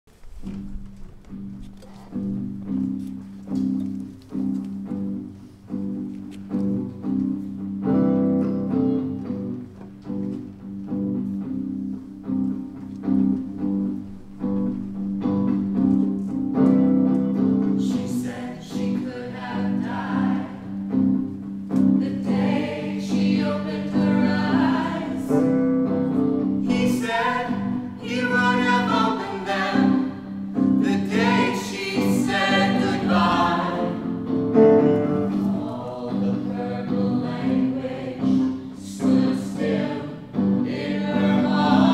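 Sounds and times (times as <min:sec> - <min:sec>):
voices singing together: 0:17.7 - 0:21.2, 0:21.8 - 0:41.9.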